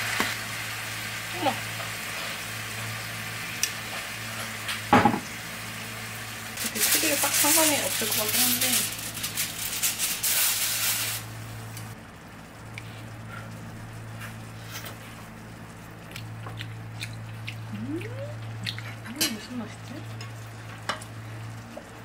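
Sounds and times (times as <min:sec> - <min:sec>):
crackling hiss of frying pan: 0:00.0 - 0:12.0
steady low hum: 0:00.0 - 0:22.0
person humming: 0:17.7 - 0:18.4.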